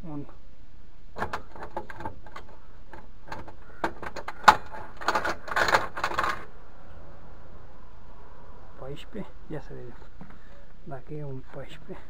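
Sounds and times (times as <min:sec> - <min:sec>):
hand tools clicking and knocking: 0:01.2 - 0:06.5.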